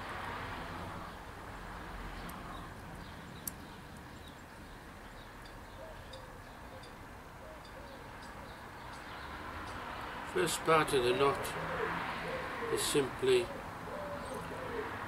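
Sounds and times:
faint bird chirps: 0:02.4 - 0:09.3.

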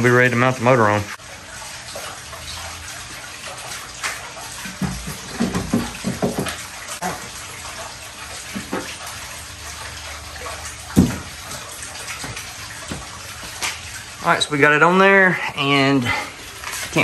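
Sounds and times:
outboard motor knocks and clunks: 0:04.0 - 0:07.4, 0:08.5 - 0:09.2, 0:10.8 - 0:13.9.

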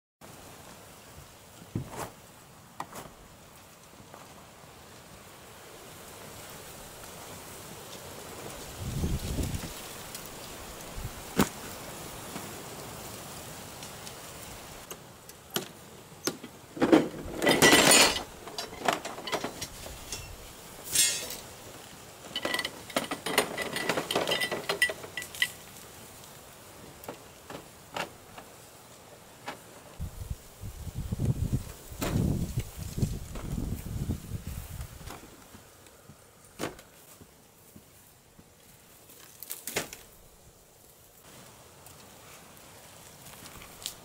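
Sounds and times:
background hiss: 0:00.2 - 0:44.0
clattering with metallic ring: 0:16.9 - 0:21.5, 0:22.3 - 0:25.6.

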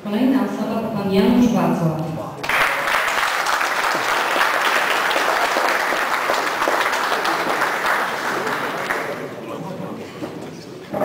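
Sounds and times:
audience applauding: 0:02.4 - 0:09.6.

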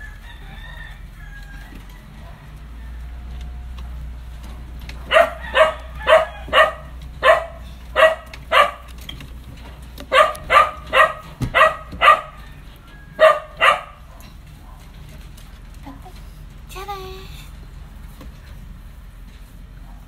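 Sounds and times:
small dog barking: 0:05.0 - 0:09.0, 0:10.1 - 0:12.5, 0:13.2 - 0:14.8.

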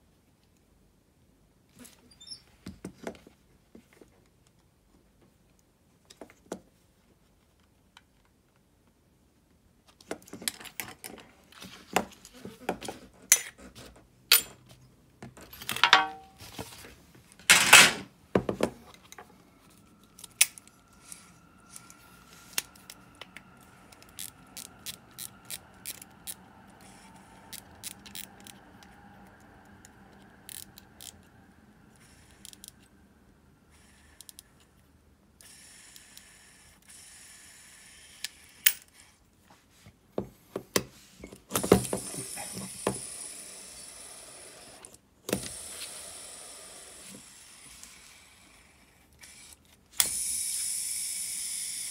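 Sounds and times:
faint steady whir: 0:18.4 - 0:51.9.

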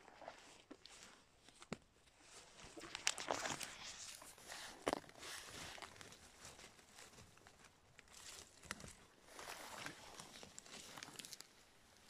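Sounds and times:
twigs snapping: 0:08.0 - 0:09.0, 0:09.7 - 0:11.5.

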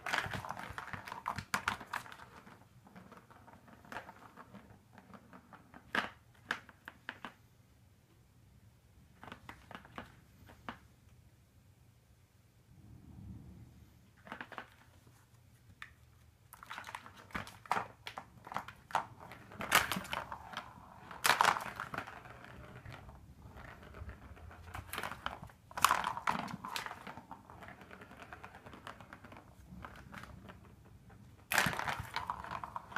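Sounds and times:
ball rattling on plastic track: 0:00.0 - 0:07.4, 0:09.1 - 0:10.8, 0:14.2 - 0:15.0, 0:16.5 - 0:32.9.

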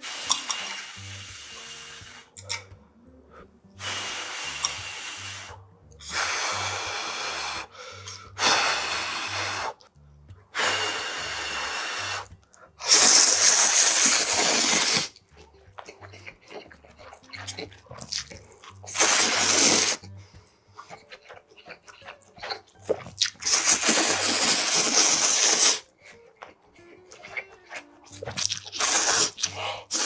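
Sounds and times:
person slurping noodles: 0:10.6 - 0:15.2, 0:15.8 - 0:25.9, 0:27.1 - 0:30.0.

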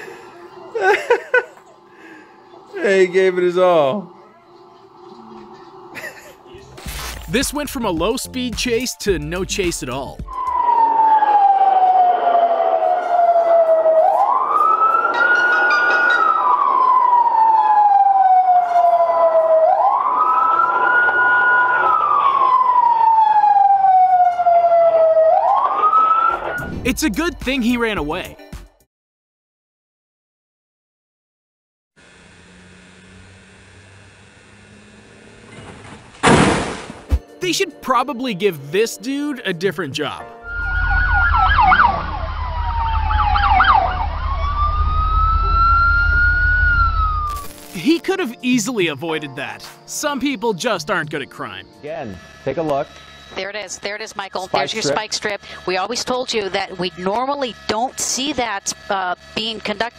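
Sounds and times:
police siren wailing: 0:10.2 - 0:26.8, 0:40.4 - 0:47.4
rapid yelping siren: 0:10.2 - 0:26.8, 0:40.4 - 0:47.4, 0:52.4 - 0:59.9.

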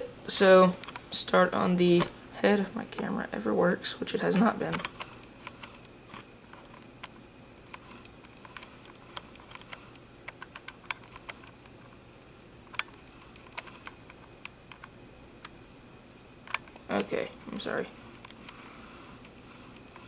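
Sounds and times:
low room hiss: 0:00.0 - 0:20.0.

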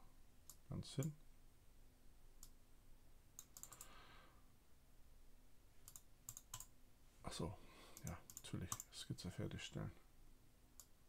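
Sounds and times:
computer mouse clicks: 0:03.4 - 0:03.9, 0:05.8 - 0:06.7, 0:08.0 - 0:08.9.

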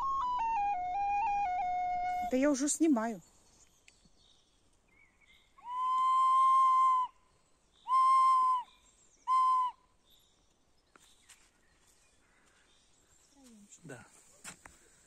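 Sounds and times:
tin whistle notes: 0:00.0 - 0:02.4, 0:05.6 - 0:07.1, 0:07.9 - 0:08.7, 0:09.3 - 0:09.8.

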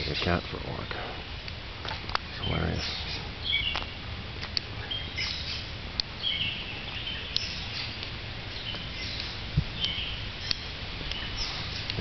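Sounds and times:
songbirds chirping: 0:00.0 - 0:12.0
steady low rumble: 0:00.0 - 0:12.0
sharp high ticks: 0:09.1 - 0:11.2.

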